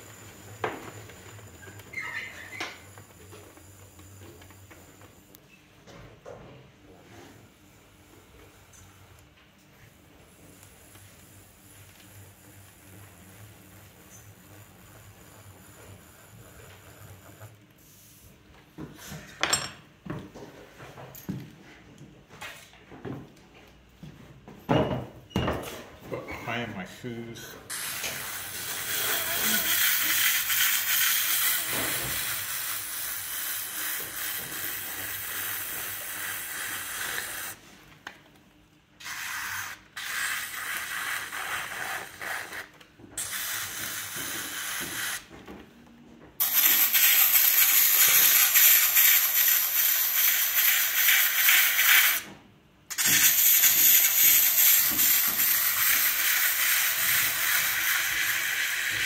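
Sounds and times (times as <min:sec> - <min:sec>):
trimming tool scraping clay: 0:39.0 - 0:42.8.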